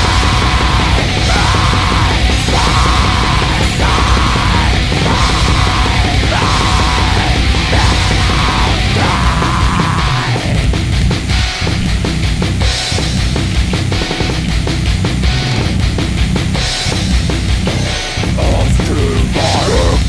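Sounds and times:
experimental black metal music: 0.0 - 20.0.

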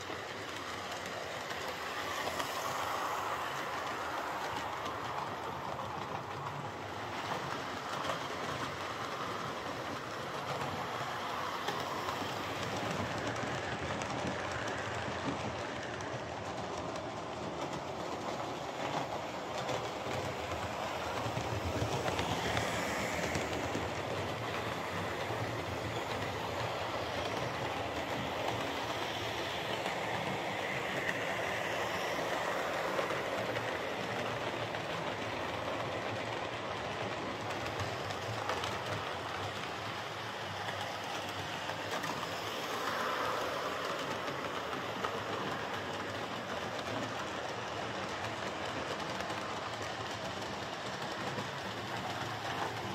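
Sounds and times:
model train motor and wheels on rails: 0.0 - 52.9.

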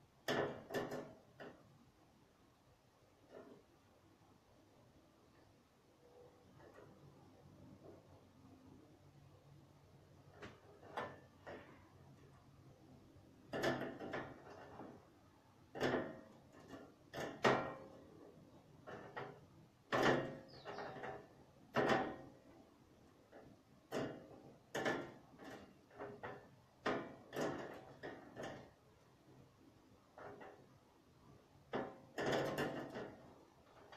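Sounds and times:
knocks and clatters: 0.2 - 1.8, 9.6 - 33.9.

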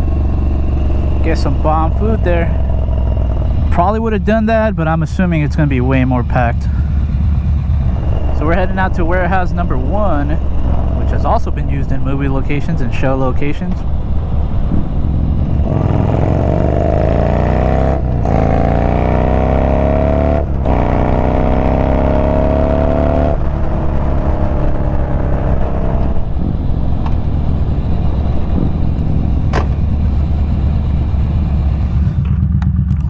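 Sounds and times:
motorcycle engine accelerating: 0.0 - 33.0.

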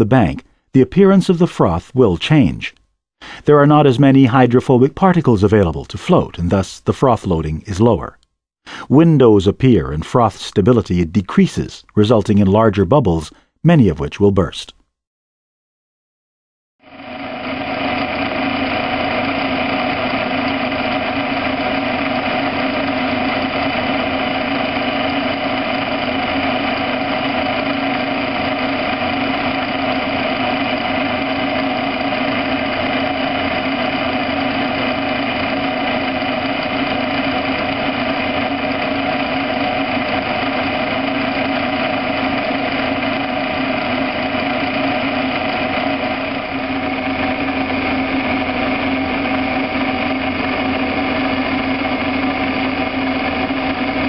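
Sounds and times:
machine motor humming: 16.8 - 54.0.

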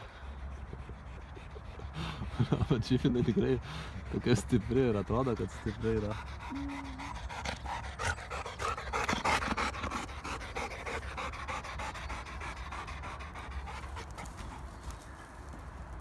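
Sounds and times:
dog panting: 0.0 - 15.1.

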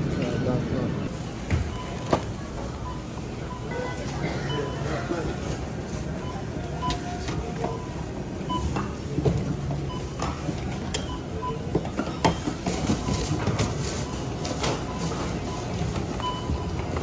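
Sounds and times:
store background noise: 0.0 - 17.0
barcode scanner beeps: 1.6 - 5.0, 9.8 - 10.4
groceries clicking and knocking: 8.6 - 17.0.

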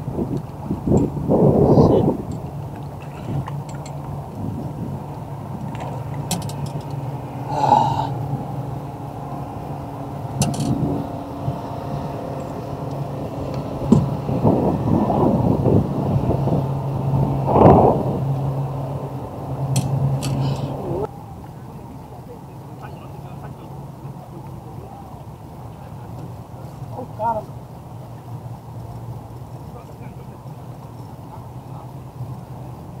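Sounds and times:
boat motor humming: 0.0 - 33.0
fishing gear knocks and rustles: 2.2 - 7.1.

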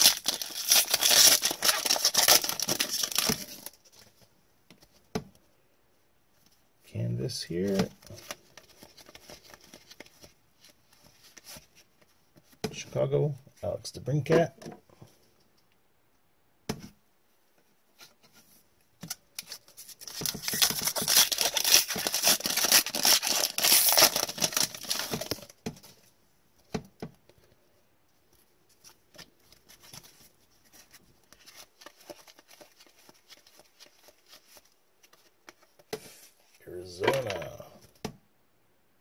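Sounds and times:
foil wrapper crackling: 0.0 - 3.7, 20.5 - 25.5
cards rustling and clicking: 0.0 - 4.9, 7.6 - 12.6, 19.0 - 26.0, 28.7 - 36.2.

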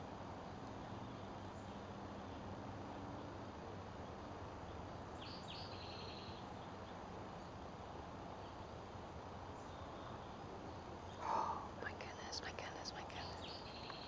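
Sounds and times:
outdoor hiss: 3.2 - 14.0
bird song with trill: 4.6 - 8.8, 12.5 - 14.0.

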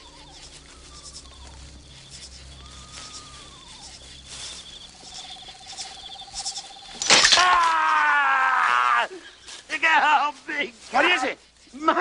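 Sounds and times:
faint long tones: 0.0 - 8.3
crickets chirping: 0.0 - 12.0
loud falling cry: 7.1 - 9.2.

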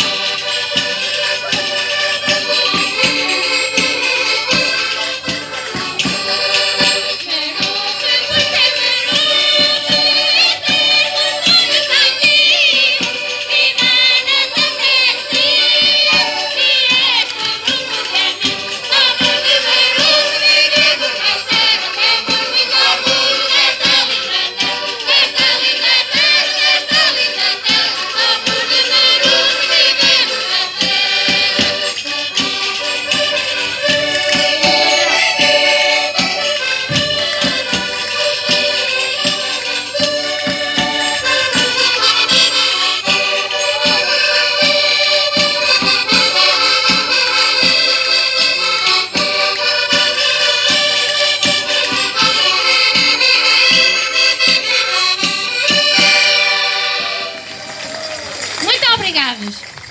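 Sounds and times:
accordions playing dance tune: 0.0 - 59.9
hand percussion beat: 0.0 - 59.9.

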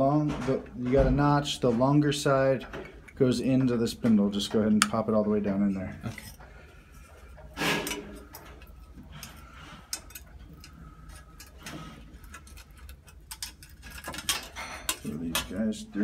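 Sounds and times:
metal lock hardware clicks and scrapes: 7.8 - 15.6.

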